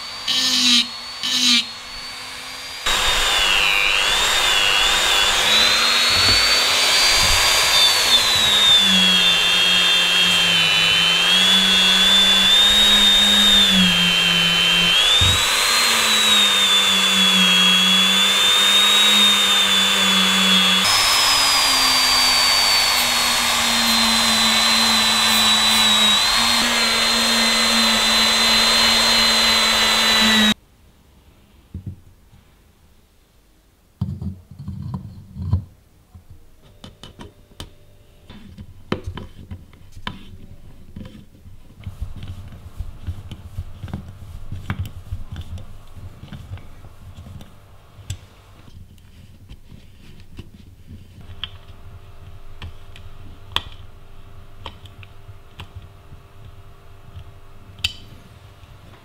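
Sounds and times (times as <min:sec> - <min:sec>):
rotary tool polishing metal: 0:00.0 - 0:30.6.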